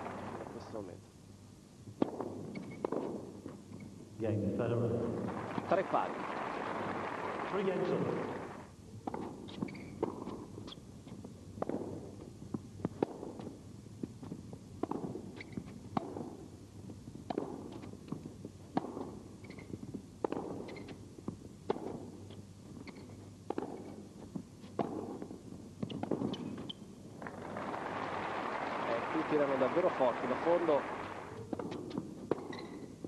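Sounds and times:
racket hitting tennis ball: 2.0s - 3.4s, 9.0s - 10.8s, 11.6s - 12.2s, 12.8s - 13.6s, 14.8s - 16.5s, 17.2s - 21.0s, 21.6s - 26.8s, 30.5s - 32.9s
tennis ball bouncing: 2.0s - 3.6s, 9.0s - 13.6s, 14.2s - 16.5s, 17.2s - 26.8s, 29.8s - 32.9s.

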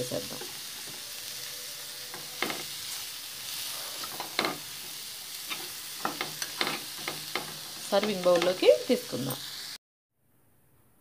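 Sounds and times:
light frying sizzle: 0.0s - 9.8s
metal spatula scraping pan: 0.8s - 9.5s.

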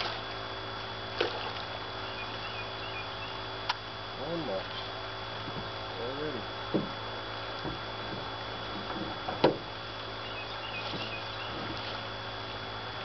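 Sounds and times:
faint high chirps: 2.0s - 3.4s
knocks in a small boat: 5.4s - 5.8s, 6.6s - 9.8s, 10.8s - 12.0s.

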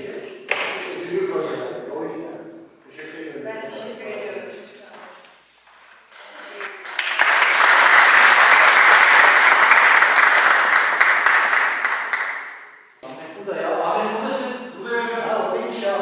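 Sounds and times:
audience applauding: 6.5s - 12.7s.

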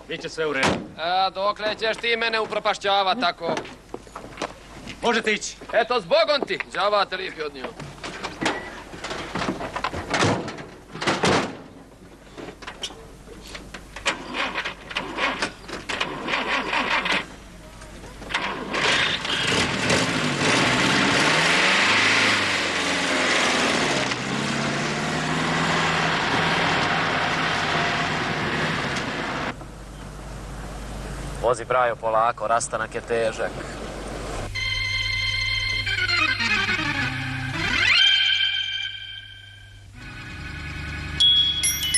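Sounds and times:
knocks and clatter: 7.7s - 13.0s.

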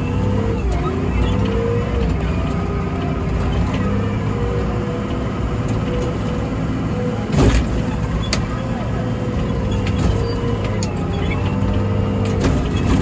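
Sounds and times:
wheel loader diesel engine running: 0.0s - 13.0s.

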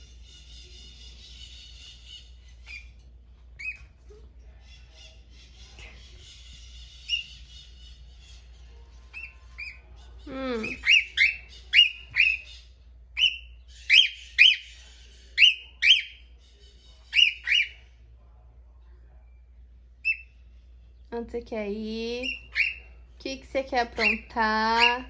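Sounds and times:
cockatiel sharp chirping calls: 10.7s - 12.6s, 13.2s - 14.8s, 17.1s - 17.8s, 22.2s - 22.8s.

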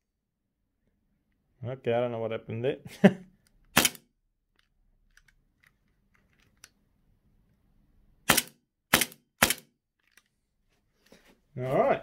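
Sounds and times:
gas pistol shots: 3.7s - 4.0s, 8.3s - 9.7s.

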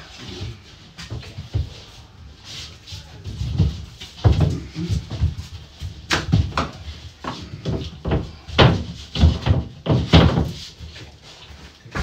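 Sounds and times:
plasterboard knocking against battens: 7.6s - 10.6s.

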